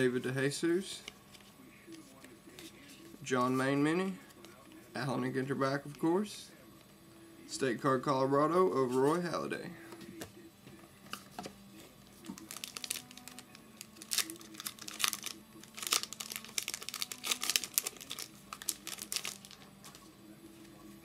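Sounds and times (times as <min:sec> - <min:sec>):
wrapper torn and crumpled: 0:12.4 - 0:19.7.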